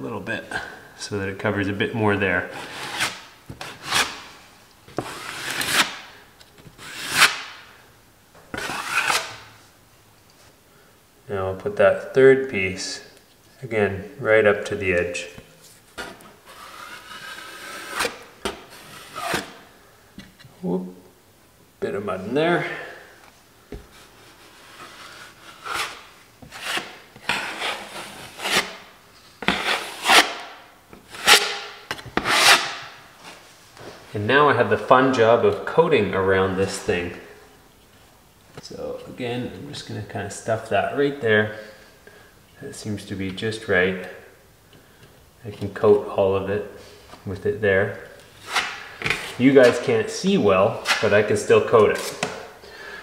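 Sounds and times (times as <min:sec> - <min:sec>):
drywall tape scraping: 0:02.5 - 0:07.6, 0:08.5 - 0:09.5, 0:15.6 - 0:19.7, 0:23.7 - 0:33.4, 0:48.2 - 0:52.5.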